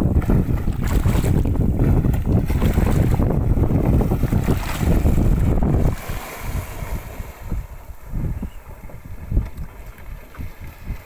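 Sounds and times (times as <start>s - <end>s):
heavy water splashing: 0.0s - 8.3s
wind buffeting microphone: 0.0s - 11.0s.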